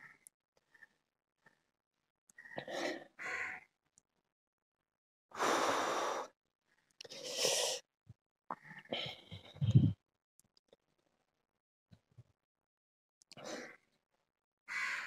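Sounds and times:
person huffing and sighing: 8.9 - 10.0.

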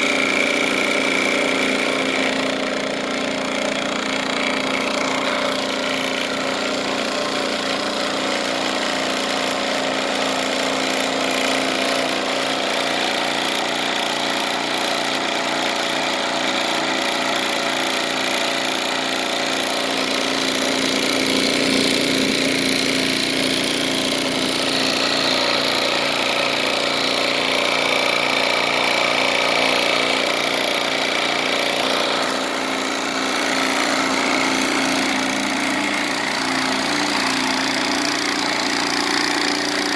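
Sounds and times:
vibration motor humming: 0.0 - 39.9.

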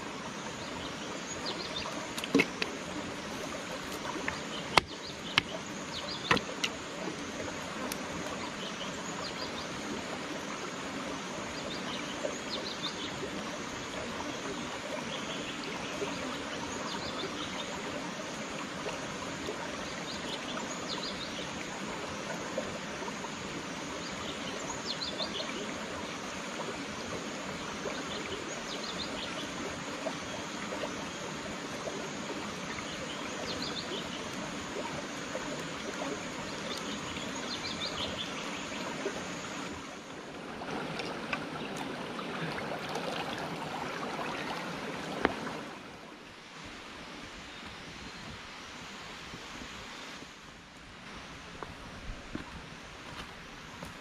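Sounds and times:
birds chirping: 0.0 - 9.8, 32.6 - 40.1
shallow rocky stream running: 0.0 - 54.0.

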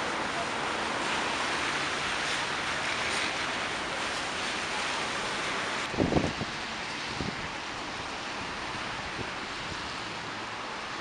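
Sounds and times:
wind blowing: 0.1 - 10.2.

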